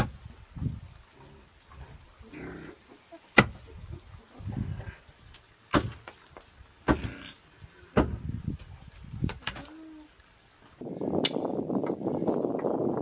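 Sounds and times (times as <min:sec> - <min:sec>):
rock pounding wooden stake: 0:03.4 - 0:03.6, 0:05.7 - 0:06.2.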